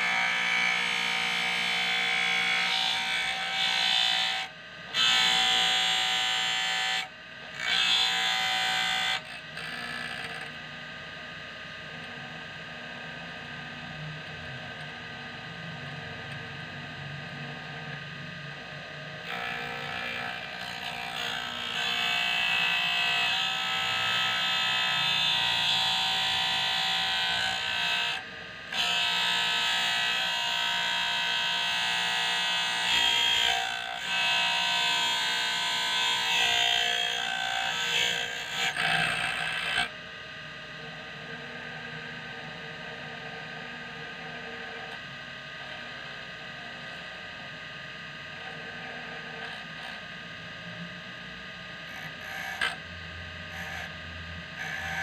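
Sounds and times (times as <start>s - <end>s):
drill bit grinding on wheel: 0.0s - 10.6s, 19.2s - 39.9s, 51.9s - 52.8s, 54.6s - 55.0s
bench grinder humming: 0.0s - 11.2s, 11.9s - 40.0s, 48.3s - 50.2s, 51.7s - 55.0s.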